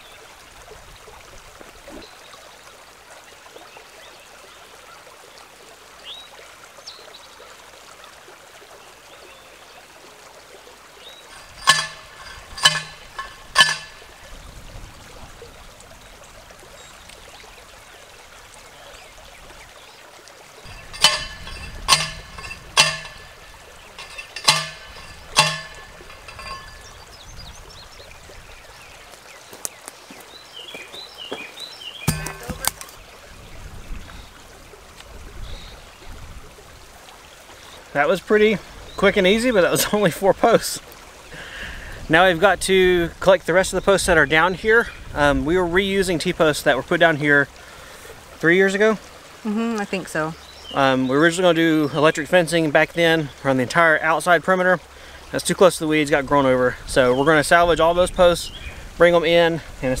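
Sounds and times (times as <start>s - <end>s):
creek rushing: 0.0s - 60.0s
ringing metal clangs: 11.3s - 14.4s, 20.7s - 27.8s, 32.1s - 33.0s.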